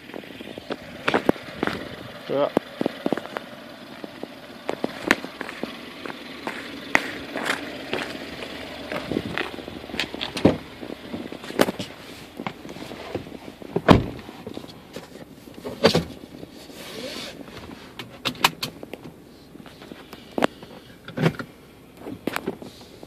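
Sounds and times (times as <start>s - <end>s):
footsteps crunching on snow: 2.8s - 13.7s
clicks and knocks inside car: 6.4s - 16.5s, 19.8s - 22.7s
car door shutting: 9.0s - 19.2s, 19.8s - 22.7s.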